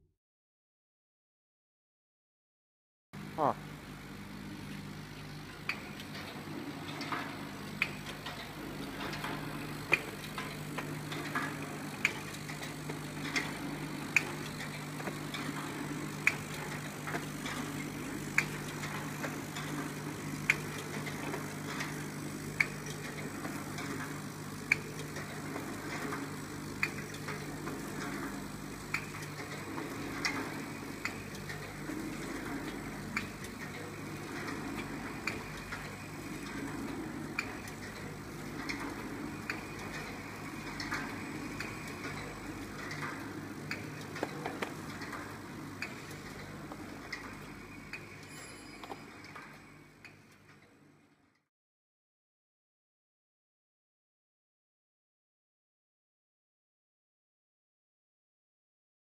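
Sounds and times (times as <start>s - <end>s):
wrapping machine clacking: 5.5s - 50.6s.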